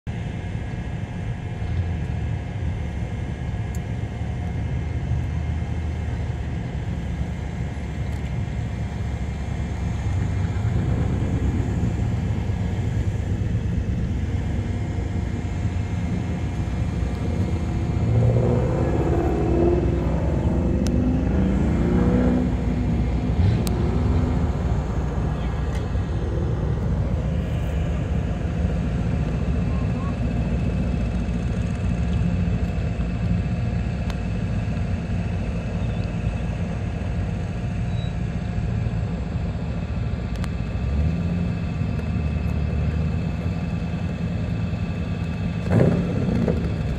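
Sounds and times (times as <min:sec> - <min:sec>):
car engines idling: 0:00.1 - 0:46.9
car engine driving past: 0:09.2 - 0:29.4.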